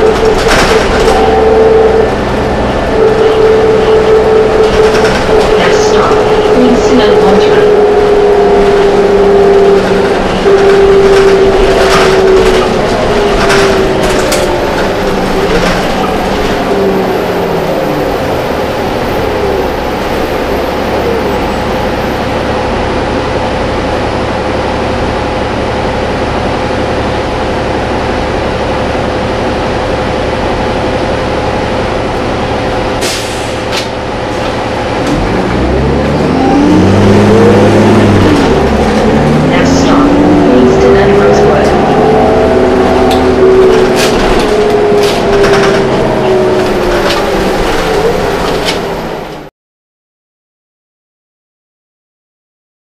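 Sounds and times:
bus engine running: 0.0s - 49.5s
knocks and rattles: 9.8s - 16.6s, 43.1s - 48.8s.

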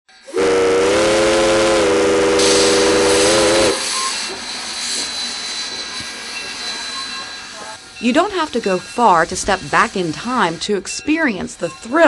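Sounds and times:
steam locomotive whistle: 0.1s - 5.8s
steam hissing: 0.1s - 12.0s.

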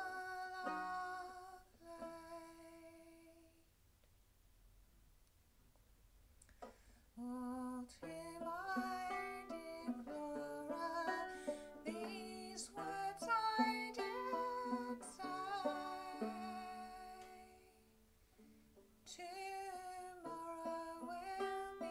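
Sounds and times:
banjo picking: 0.0s - 3.3s, 7.6s - 21.9s
woman singing: 0.0s - 3.6s, 7.2s - 17.9s, 19.0s - 21.9s.

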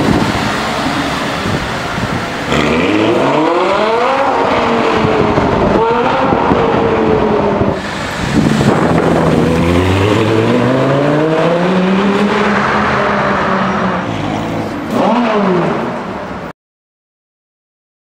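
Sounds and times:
sports car engine accelerating: 2.5s - 16.0s.

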